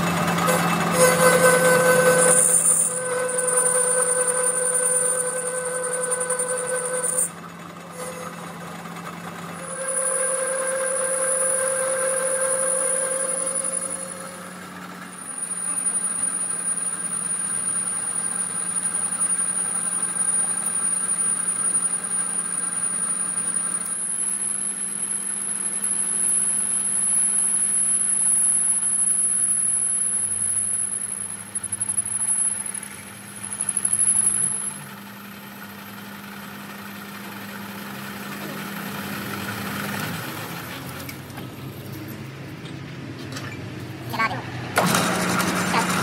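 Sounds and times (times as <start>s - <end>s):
lathe motor hum: 0.0s - 23.9s
high-pitched cutting whine: 0.0s - 35.1s.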